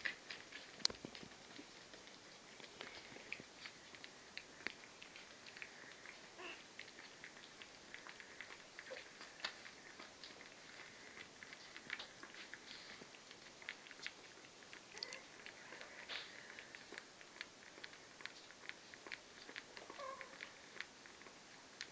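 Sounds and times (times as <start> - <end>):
puppy paws pattering on paper: 0.0 - 21.9
faint puppy squeaks: 6.3 - 6.7, 14.9 - 16.4, 19.8 - 20.6.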